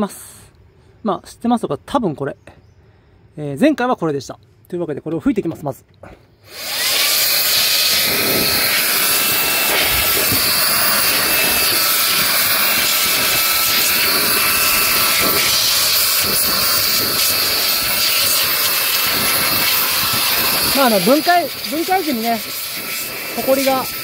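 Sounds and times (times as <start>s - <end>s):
handheld blower rushing air: 6.4s - 24.0s.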